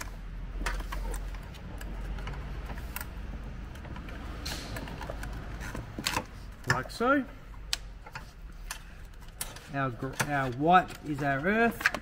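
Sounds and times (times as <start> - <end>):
wiring harness clicking and rubbing: 0.0 - 12.0.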